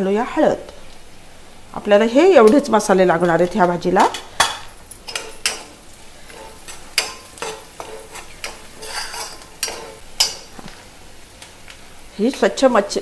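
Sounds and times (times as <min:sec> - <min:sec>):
food sizzling in oil: 0:00.4 - 0:13.0
spoon scraping a pan: 0:03.3 - 0:10.8.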